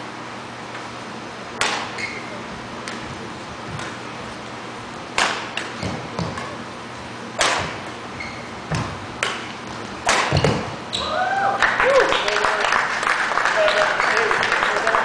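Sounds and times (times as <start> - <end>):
rackets striking shuttlecock: 1.6 - 3.1, 3.7 - 4.1, 5.1 - 6.7, 7.3 - 10.8.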